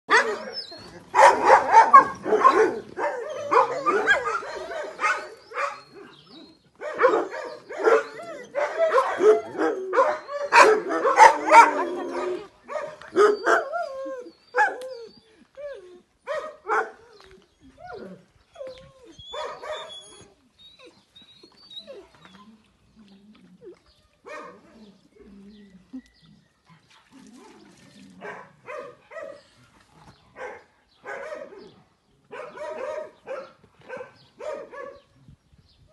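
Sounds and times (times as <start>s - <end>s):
dogs barking: 0.1s - 6.2s, 6.8s - 13.7s, 16.3s - 17.0s, 19.3s - 20.0s, 24.3s - 24.7s, 28.2s - 29.5s, 30.3s - 35.1s.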